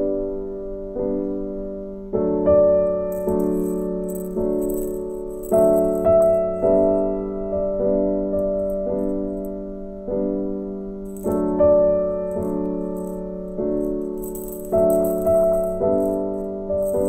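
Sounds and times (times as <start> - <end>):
slow piano chords: 0.0 - 17.0
plastic ball toy rattling: 3.1 - 7.1, 11.1 - 11.7, 12.3 - 17.0.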